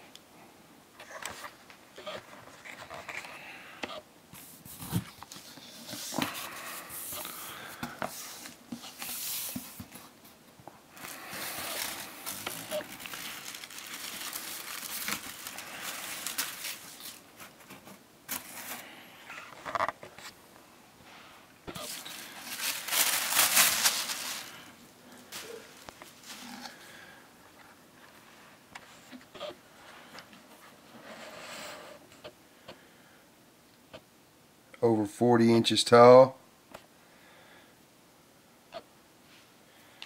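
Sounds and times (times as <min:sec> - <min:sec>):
packing sheet crinkling: 0:10.9 - 0:18.8, 0:21.8 - 0:26.9
cardboard box rustling: 0:11.3 - 0:18.8, 0:21.8 - 0:24.5.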